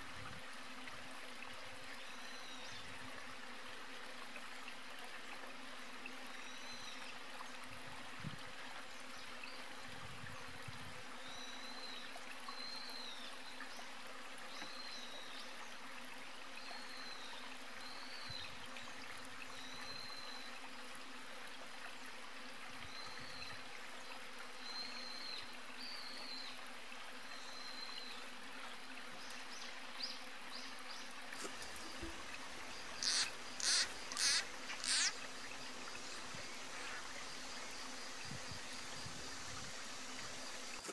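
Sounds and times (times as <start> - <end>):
steady hiss of running water: 0.0 - 40.9
loud sharp calls: 32.8 - 35.3.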